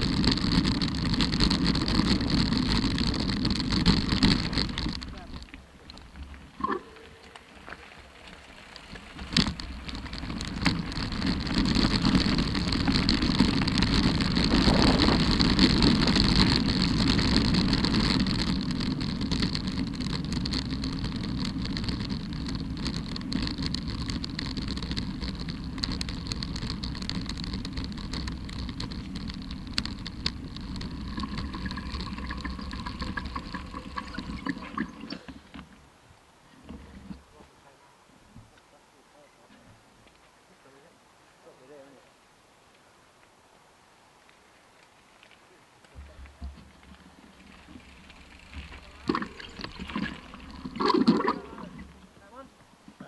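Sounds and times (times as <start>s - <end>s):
wind rumble on microphone: 0.0s - 6.7s, 8.8s - 35.6s
bike tyres crunching on gravel: 0.0s - 35.8s, 44.2s - 52.4s.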